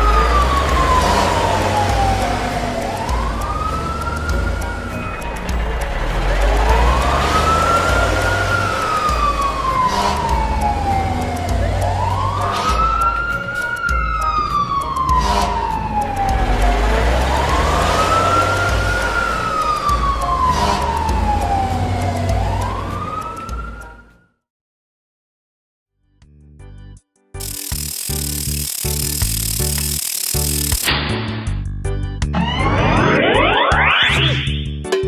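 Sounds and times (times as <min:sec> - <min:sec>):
fire truck siren wailing: 0:00.0 - 0:24.3, 0:32.4 - 0:34.5.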